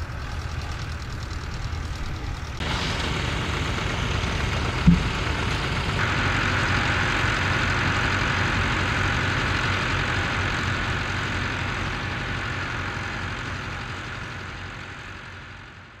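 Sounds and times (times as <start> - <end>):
tractor engine idling: 0.0 - 16.0.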